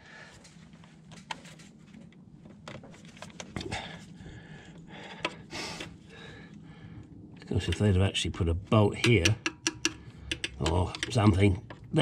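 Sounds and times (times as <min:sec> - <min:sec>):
plastic clip clicks and knocks: 0:09.0 - 0:11.8.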